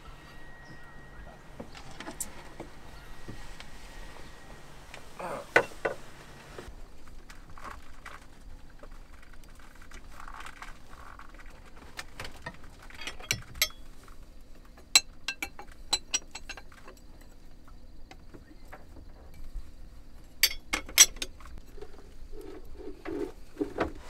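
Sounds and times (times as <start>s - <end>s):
metal wrenches clinking and scraping: 12.6s - 13.9s, 14.8s - 17.1s, 20.4s - 21.3s.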